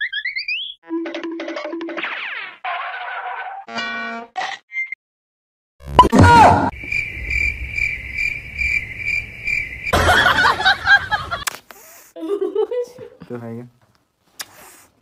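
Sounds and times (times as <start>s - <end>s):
crickets chirping: 6.7s - 11.4s.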